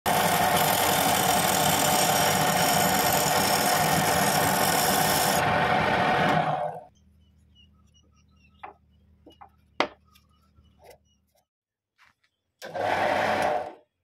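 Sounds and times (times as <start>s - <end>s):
chisel scraping spinning wood: 0.1s - 6.9s
wood lathe running: 0.1s - 6.9s, 12.6s - 13.8s.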